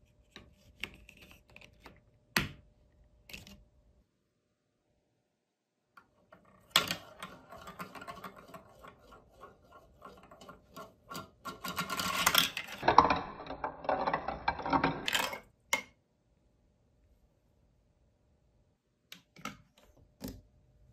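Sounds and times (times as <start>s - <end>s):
ball rolling and rattling in plastic chutes: 6.2s - 15.6s.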